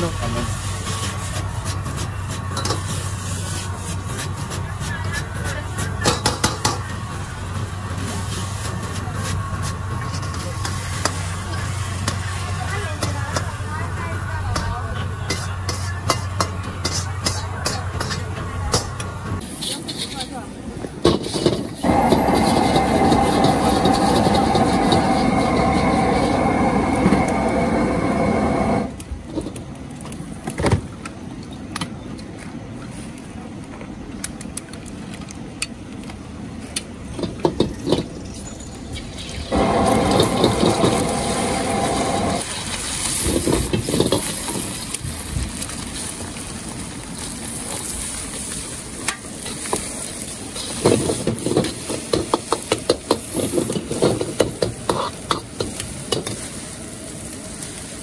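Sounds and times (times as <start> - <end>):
gas burner roaring: 0.0 - 31.9, 39.5 - 58.0.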